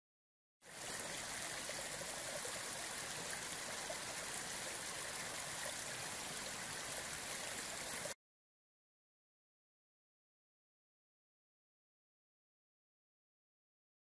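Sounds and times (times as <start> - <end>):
brook water rushing over stones: 0.6 - 8.2.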